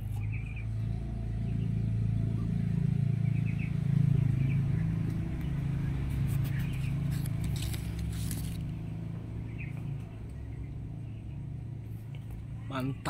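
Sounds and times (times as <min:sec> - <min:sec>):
low motor hum: 0:00.0 - 0:13.0
leaves rustling against phone: 0:05.9 - 0:09.1.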